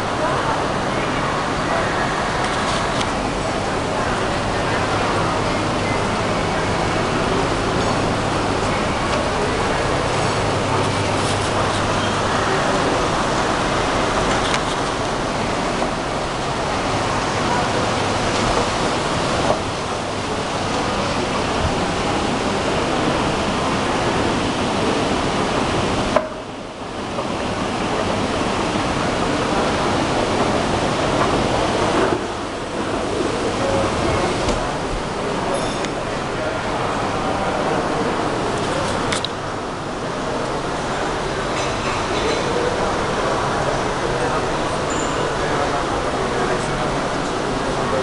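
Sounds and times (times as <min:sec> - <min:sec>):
shopping hall background hiss: 0:00.0 - 0:48.0.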